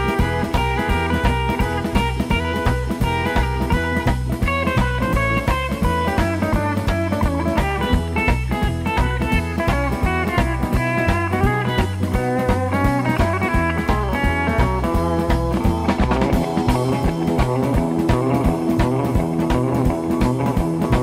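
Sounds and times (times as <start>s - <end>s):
instrumental rock music: 0.0s - 21.0s.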